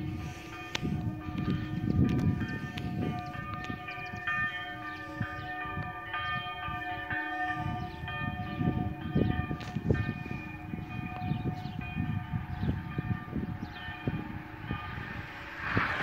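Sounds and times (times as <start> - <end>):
church bells ringing: 0.0 - 16.0
low rumble: 13.5 - 16.0.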